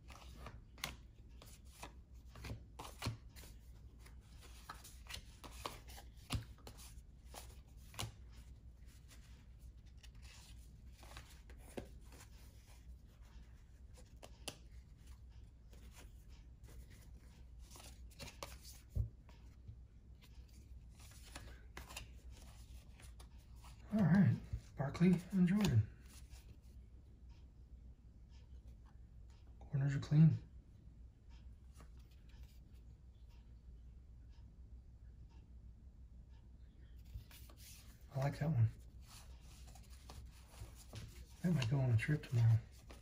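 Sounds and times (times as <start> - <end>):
trading cards rustling: 0.0 - 19.4, 20.2 - 26.5, 37.0 - 43.0
cards tapping: 0.1 - 8.3, 39.5 - 43.0.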